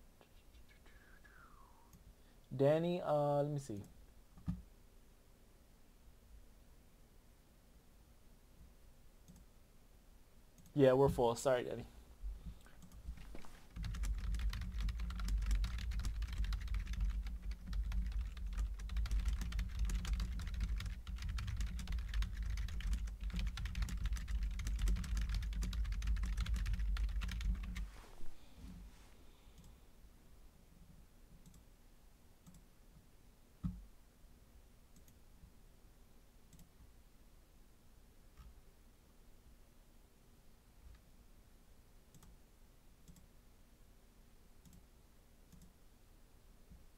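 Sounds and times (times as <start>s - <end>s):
fast keyboard typing: 12.8s - 27.8s.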